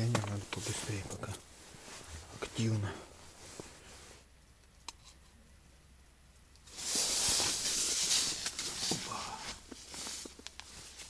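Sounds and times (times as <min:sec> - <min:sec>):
synthetic suit rustling on microphone: 0:00.4 - 0:04.2, 0:06.7 - 0:11.0.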